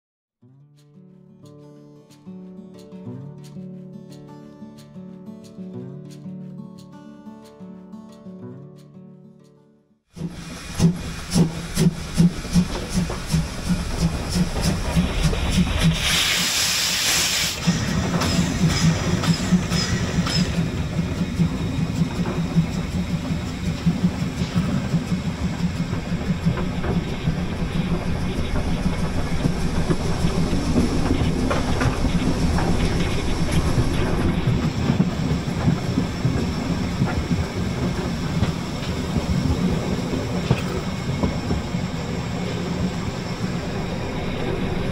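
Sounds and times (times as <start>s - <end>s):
rail clatter: 10.2s - 16.6s, 17.6s - 44.9s
steam hissing: 10.2s - 44.9s
steam locomotive chuffing: 10.2s - 44.9s.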